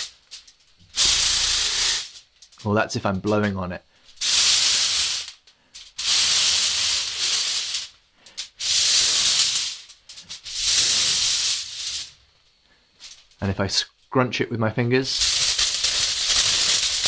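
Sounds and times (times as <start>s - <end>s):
breath hissing onto tin foil: 0.9s - 2.2s, 3.9s - 13.3s, 15.1s - 17.0s.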